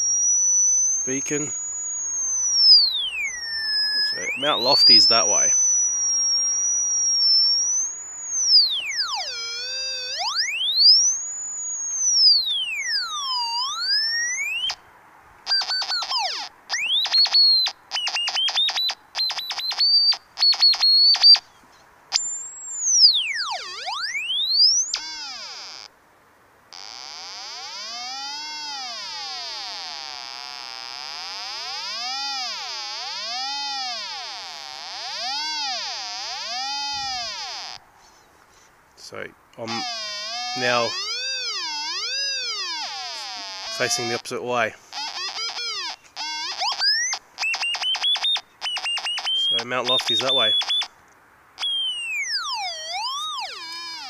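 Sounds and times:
electronic receiver tone: 0:00.0 - 0:14.8, 0:15.5 - 0:21.4, 0:22.1 - 0:25.9, 0:26.8 - 0:37.8, 0:39.7 - 0:44.2, 0:45.0 - 0:50.9, 0:51.6 - 0:54.0.

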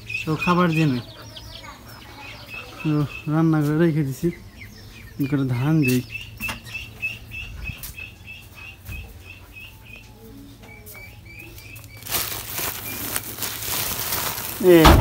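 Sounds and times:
bird chirping: 0:00.0 - 0:14.7
plastic sack rustling: 0:11.8 - 0:15.0.

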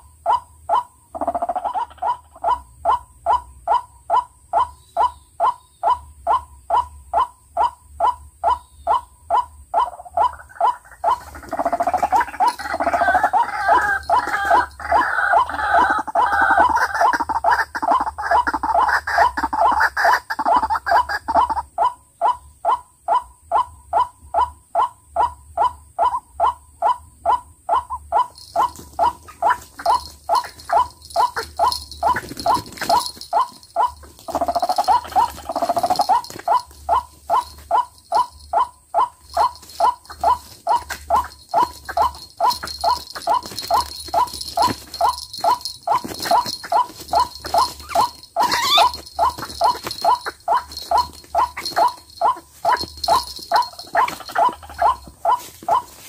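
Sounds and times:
waterhen calls repeating: 0:00.3 - 0:56.0
louder wavering bird call: 0:46.3 - 0:52.4.

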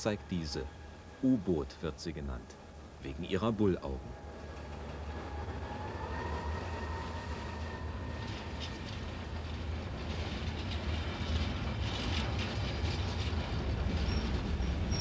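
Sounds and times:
diesel locomotive engine rumble: 0:00.0 - 0:15.0.

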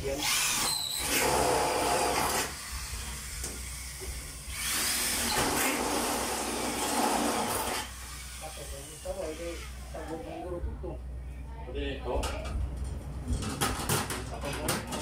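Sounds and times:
power tool running: 0:00.1 - 0:10.0.

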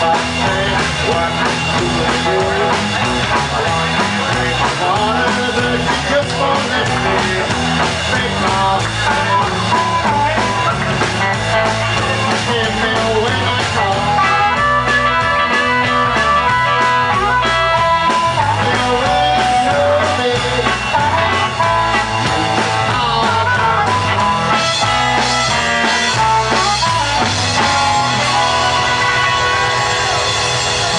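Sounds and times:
live blues band playing: 0:00.0 - 0:30.9
harmonica wailing: 0:21.0 - 0:30.9.

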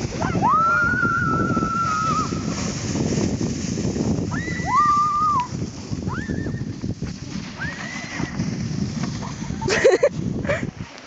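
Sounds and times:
rough rustling noise: 0:00.0 - 0:11.0
people squealing: 0:00.2 - 0:02.5, 0:04.3 - 0:05.5.

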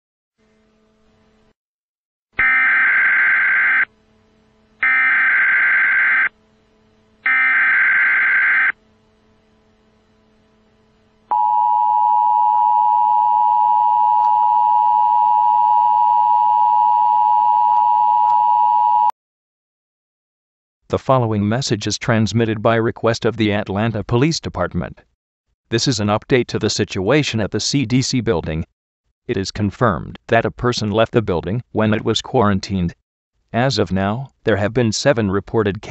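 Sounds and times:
two-tone alarm: 0:02.4 - 0:03.9, 0:04.8 - 0:06.3, 0:07.2 - 0:08.8, 0:11.3 - 0:19.1
buzzing data tones: 0:07.2 - 0:08.9.

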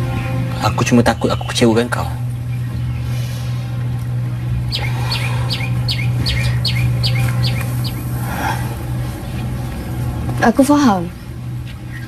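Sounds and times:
steady low hum: 0:00.0 - 0:12.0
bird calling high falling notes: 0:04.5 - 0:09.3.

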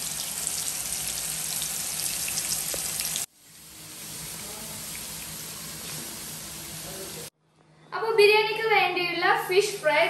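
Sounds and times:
fish sizzling in oil: 0:00.0 - 0:07.3.

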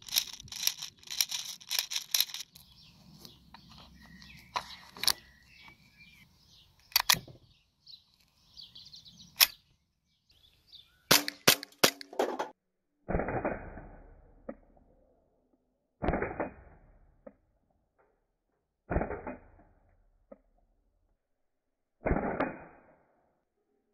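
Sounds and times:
magazine clicking into pistol: 0:06.9 - 0:07.2
airsoft pistol shots: 0:11.1 - 0:12.1, 0:13.1 - 0:14.0, 0:16.0 - 0:16.8, 0:18.9 - 0:19.6, 0:22.0 - 0:22.9.

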